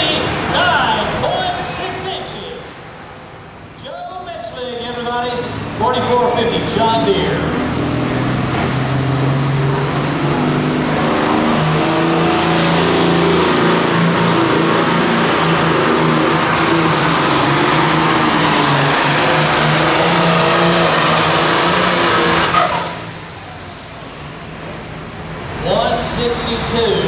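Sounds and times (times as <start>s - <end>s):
tractor diesel engine at full throttle: 5.3s - 27.0s
high whine rising in pitch: 5.8s - 24.5s.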